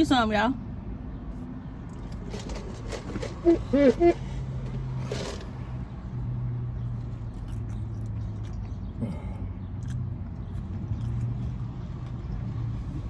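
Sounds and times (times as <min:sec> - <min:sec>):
person chewing food: 0:06.8 - 0:12.7.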